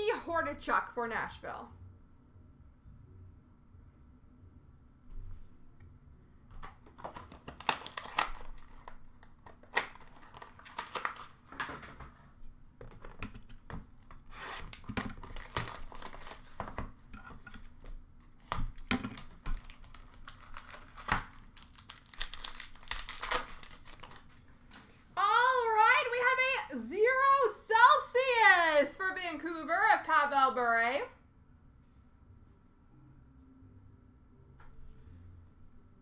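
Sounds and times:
cardboard rustling: 0:06.6 - 0:24.3
wrappers tearing and crinkling: 0:06.8 - 0:11.6, 0:13.5 - 0:24.4.

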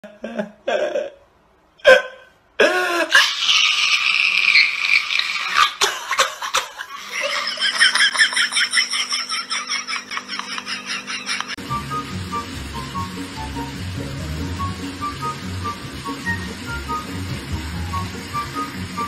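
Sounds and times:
person laughing: 0:00.0 - 0:11.6.

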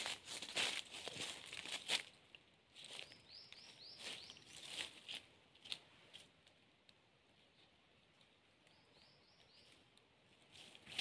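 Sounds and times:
dry leaves rustling and crunching: 0:00.0 - 0:06.3, 0:10.5 - 0:11.0
bird chirping: 0:02.8 - 0:05.0, 0:07.4 - 0:10.7.

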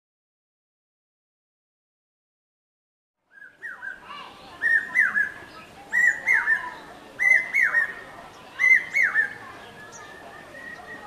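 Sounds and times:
cuckoo calling whistled phrases: 0:03.3 - 0:11.0.

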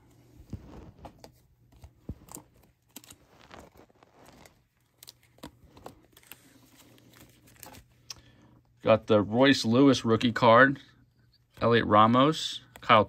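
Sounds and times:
trading cards clicking and rustling: 0:00.5 - 0:08.4.

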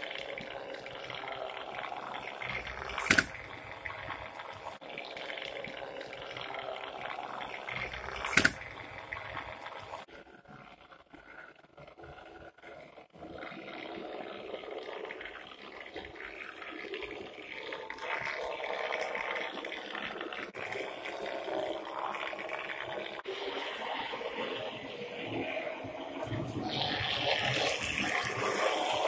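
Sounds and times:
model train motor whirr: 0:00.0 - 0:04.8, 0:05.6 - 0:12.4.

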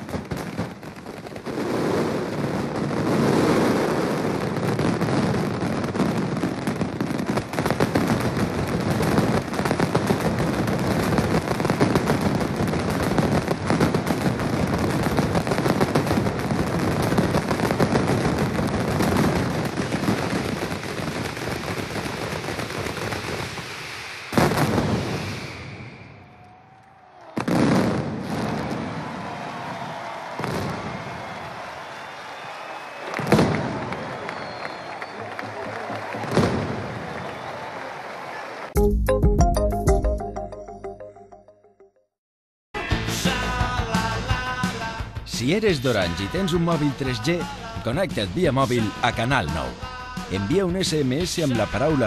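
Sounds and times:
firecrackers banging: 0:00.0 - 0:38.0.

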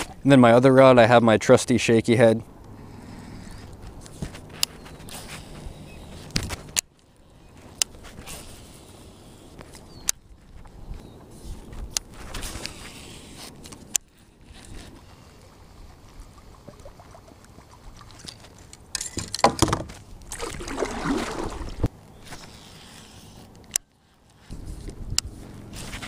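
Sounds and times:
water sloshing around hull: 0:14.2 - 0:21.9
paddle strokes splashing: 0:14.7 - 0:18.8, 0:20.3 - 0:23.3.

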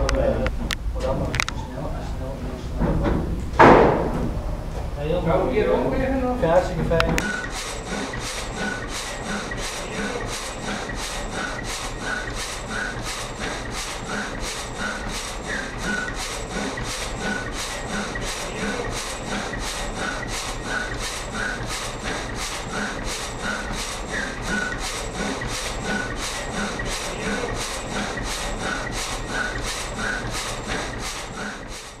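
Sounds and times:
sawmill machinery running rhythmically: 0:02.7 - 0:32.0.

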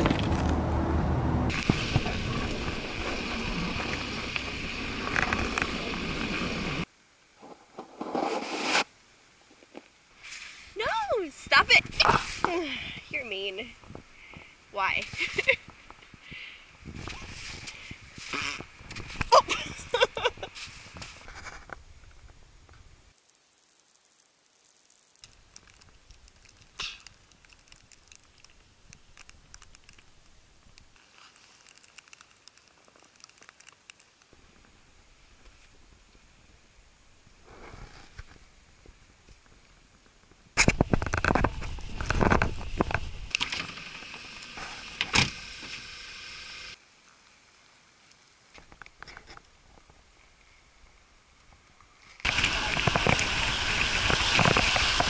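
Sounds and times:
tyres rushing through snow: 0:00.0 - 0:06.9, 0:52.2 - 0:55.0.

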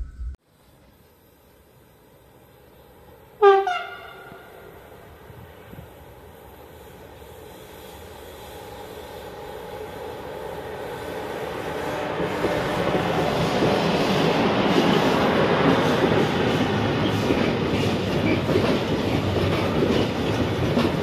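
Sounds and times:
freight train wheels rumbling on rails: 0:02.8 - 0:21.0.

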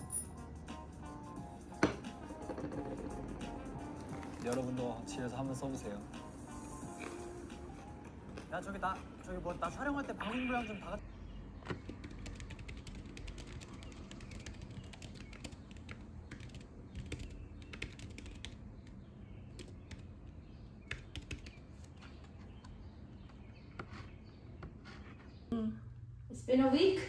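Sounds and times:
laptop keyboard typing: 0:11.6 - 0:22.8.

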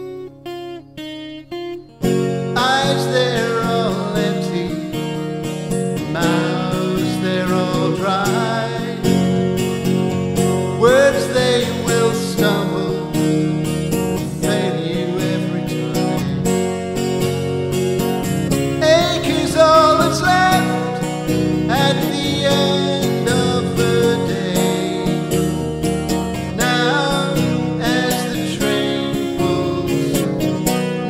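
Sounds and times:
acoustic guitar strumming: 0:00.0 - 0:31.0
man singing: 0:02.6 - 0:05.3, 0:06.0 - 0:09.4, 0:10.8 - 0:16.4, 0:18.8 - 0:25.6, 0:26.4 - 0:31.0.

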